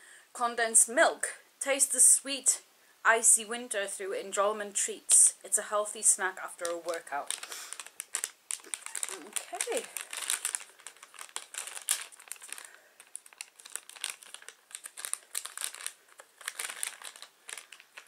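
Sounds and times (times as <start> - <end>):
snack bag crinkling: 6.5 - 18.0.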